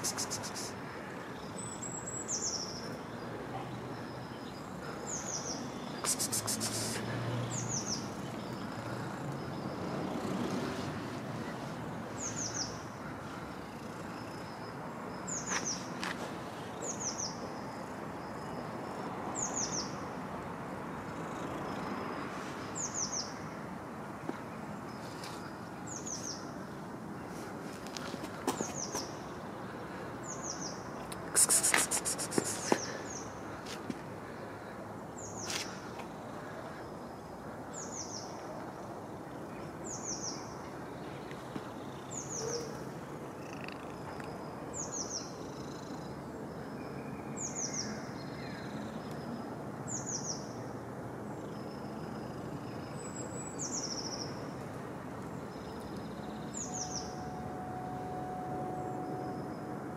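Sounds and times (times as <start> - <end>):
small bird chirping: 0.0 - 0.8, 5.2 - 7.0
outdoor background noise: 0.0 - 59.9.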